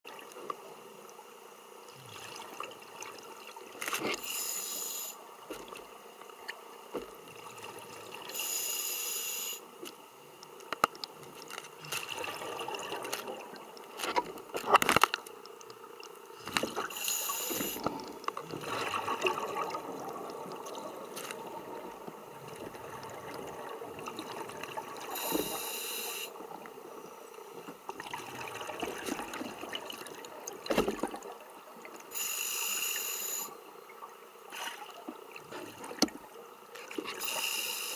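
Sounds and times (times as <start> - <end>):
regulator inhalation hiss: 4.2 - 5.3, 8.3 - 9.7, 16.9 - 17.9, 25.1 - 26.4, 32.1 - 33.6, 37.2 - 37.9
gurgling exhalation bubbles: 17.6 - 20.7.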